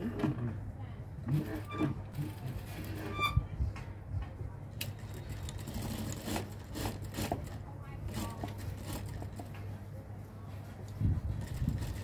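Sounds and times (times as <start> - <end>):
sewing machine stitching: 1.2 - 3.3, 5.1 - 9.5.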